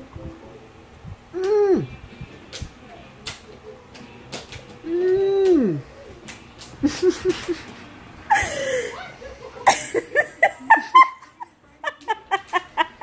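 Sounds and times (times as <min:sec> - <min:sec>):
woman laughing: 0:06.8 - 0:13.0.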